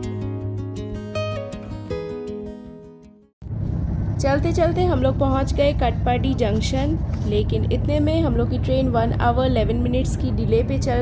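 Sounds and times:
instrumental guitar music: 0.0 - 3.3.

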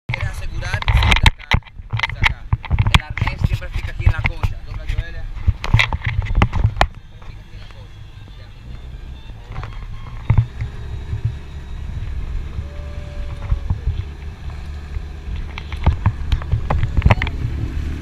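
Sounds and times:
sharp knocks and thumps: 0.1 - 7.4, 9.5 - 11.4, 13.3 - 17.7
boat engine running: 0.1 - 18.0
wind buffeting microphone: 0.1 - 18.0.

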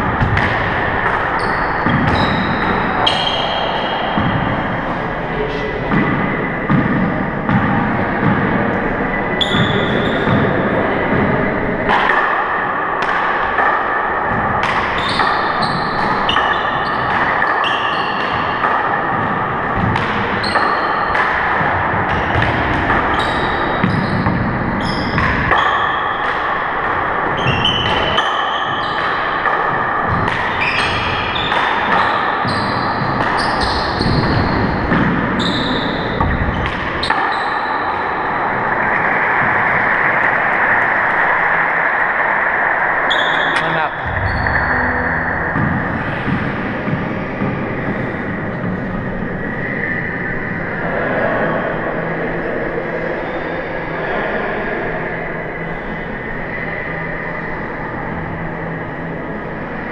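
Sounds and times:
sneakers squeaking on hardwood: 1.4 - 4.7, 9.4 - 10.6, 15.0 - 18.4, 22.2 - 26.0, 30.5 - 37.8, 43.1 - 47.9.

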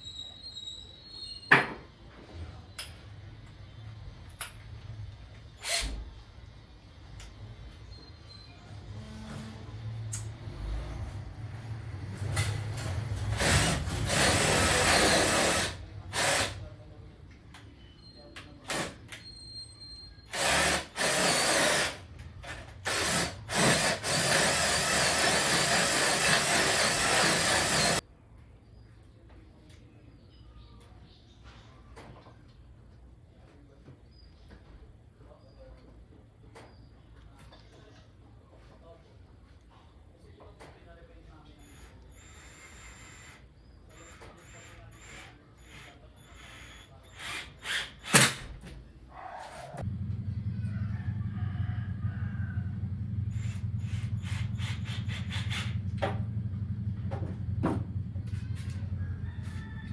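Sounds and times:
cordless drill into plywood: 13.3 - 16.6, 20.3 - 22.0, 22.8 - 28.0, 42.2 - 48.4.

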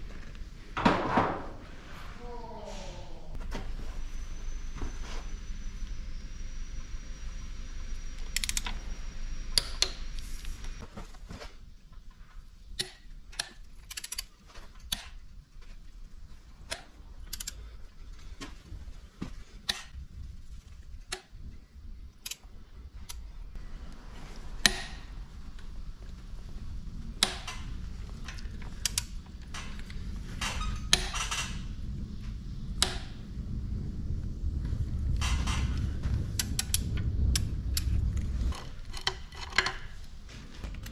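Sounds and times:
low hum: 0.0 - 40.9
ratchet wrench clicking: 12.8 - 15.1, 17.3 - 17.6.

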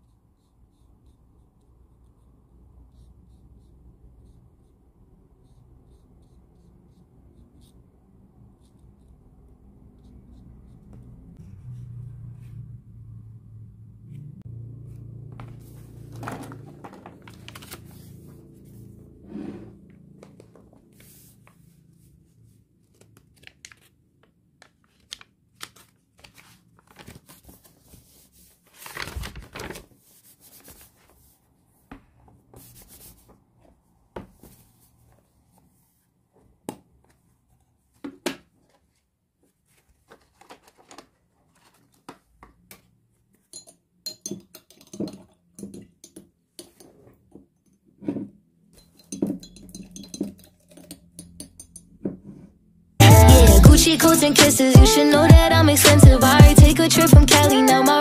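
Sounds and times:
paper pages rustling: 15.4 - 18.4, 22.8 - 31.4, 38.6 - 42.6.

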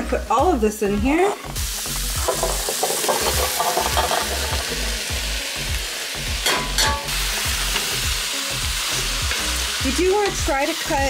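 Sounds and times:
food sizzling in a pot: 0.0 - 11.0
vegetables clattering into a pot: 2.2 - 4.7, 6.4 - 7.2.

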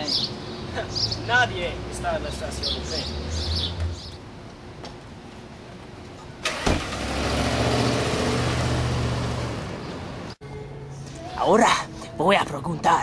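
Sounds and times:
car engine pulling away: 6.4 - 10.4.

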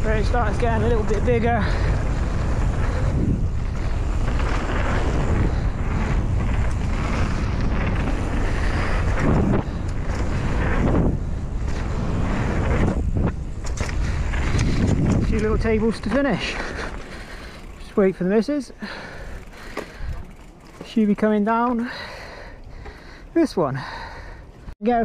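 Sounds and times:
wind on microphone: 0.0 - 16.1
bike tyres rolling over dirt: 0.0 - 23.3.

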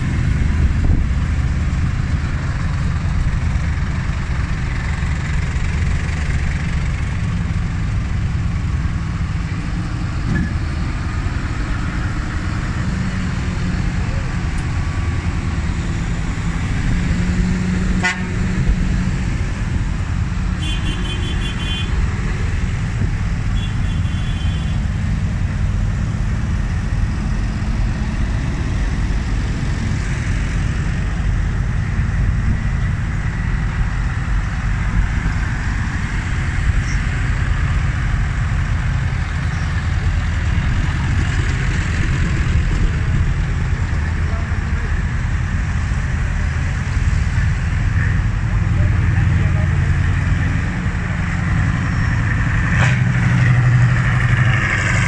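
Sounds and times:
tractor diesel engines rumbling: 0.0 - 55.0
horn tooting rapidly: 18.0 - 18.4, 20.6 - 22.0, 23.6 - 24.8.

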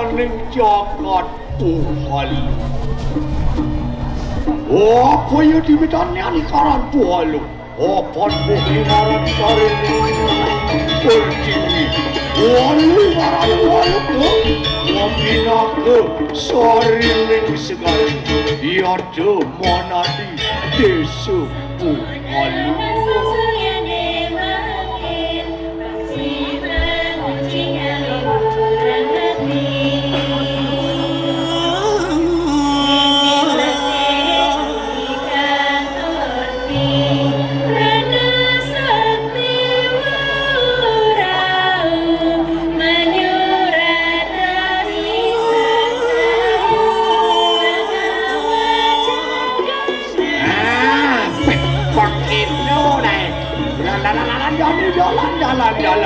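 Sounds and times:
gamelan ensemble: 0.0 - 56.0
vocal chorus singing: 0.0 - 56.0.

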